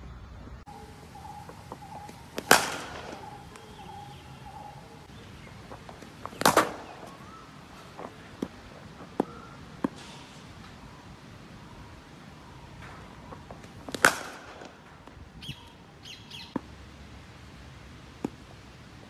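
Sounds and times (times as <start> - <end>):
cricket bat striking ball: 0.8 - 10.0, 13.0 - 15.2.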